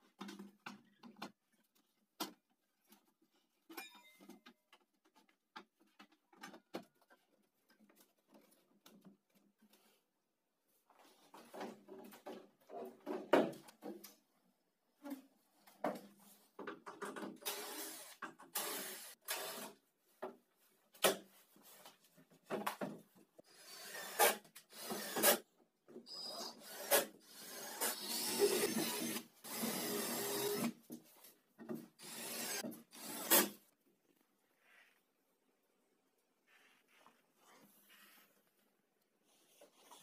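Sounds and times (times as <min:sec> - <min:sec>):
cordless drill driving screws: 0:23.6 - 0:25.4, 0:26.2 - 0:30.8, 0:32.0 - 0:33.6.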